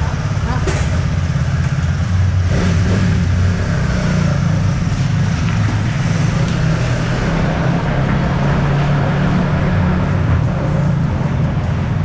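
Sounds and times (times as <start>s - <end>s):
motorcycle engines rumbling: 0.0s - 12.0s.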